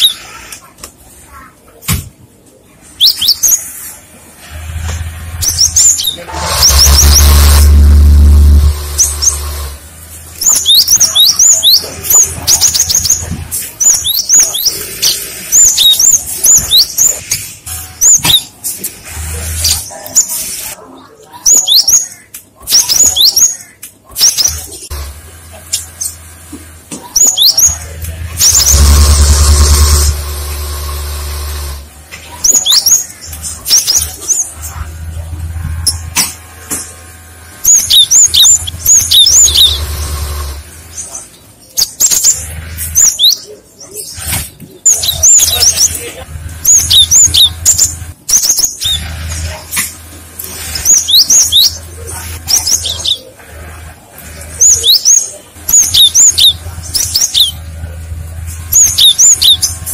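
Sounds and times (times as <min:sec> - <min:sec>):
loud low rumble with hiss: 0:06.4 - 0:10.4.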